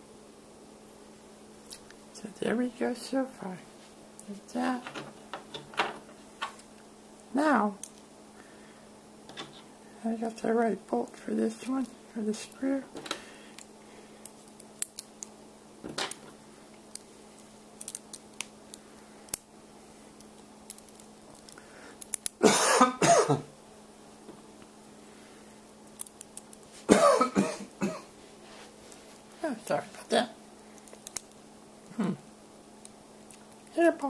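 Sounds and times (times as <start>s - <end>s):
faint steady hum: 0.0s - 34.0s
man clearing throat: 22.4s - 23.5s, 26.9s - 28.1s.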